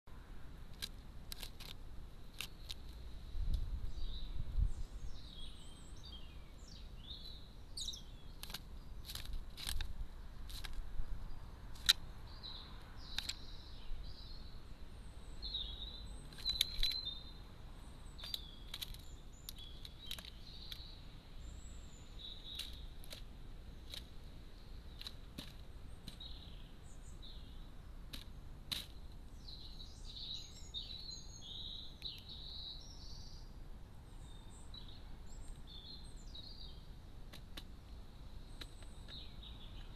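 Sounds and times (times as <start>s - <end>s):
birds chirping: 0.7s - 39.9s
sharp clicks and ticks: 13.1s - 13.4s.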